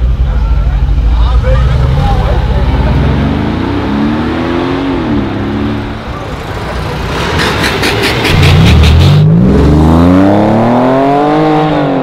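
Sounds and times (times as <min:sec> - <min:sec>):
suv engine accelerating: 0:00.0 - 0:12.0
sports car engine revving: 0:01.6 - 0:06.1, 0:07.0 - 0:12.0.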